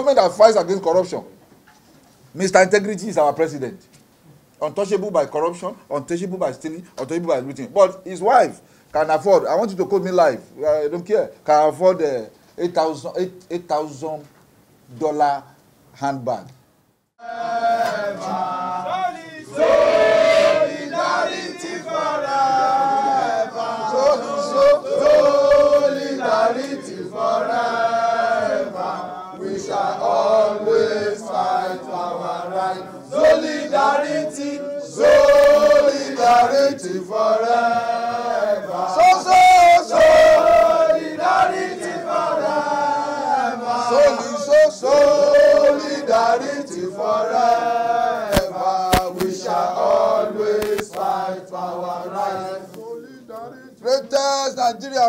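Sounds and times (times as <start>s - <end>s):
men chanting a protest song: 17.2s - 55.0s.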